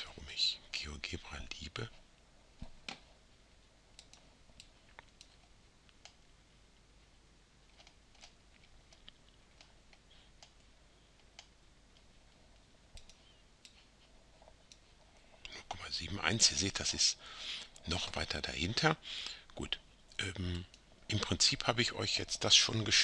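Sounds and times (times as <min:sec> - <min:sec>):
faint computer mouse clicks: 0:04.0 - 0:06.2, 0:12.9 - 0:13.8.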